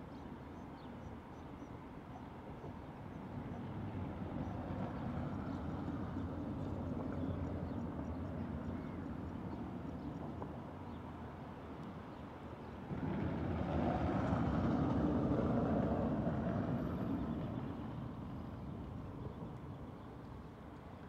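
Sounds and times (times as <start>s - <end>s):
passing road vehicle rumble: 12.6s - 20.7s.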